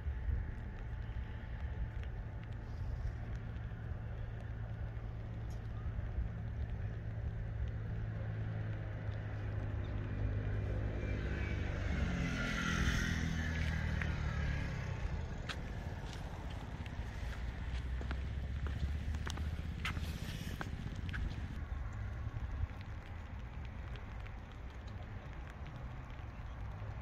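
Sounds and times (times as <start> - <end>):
low rumble of traffic: 0.0 - 27.0
vehicle passing close by: 10.0 - 21.6.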